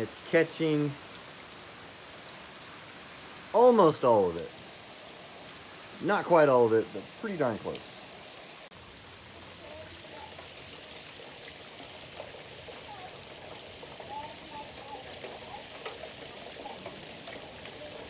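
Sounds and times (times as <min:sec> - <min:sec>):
rainwater pouring down rain chains: 0:00.0 - 0:18.0
water splashes and drips: 0:00.0 - 0:18.0.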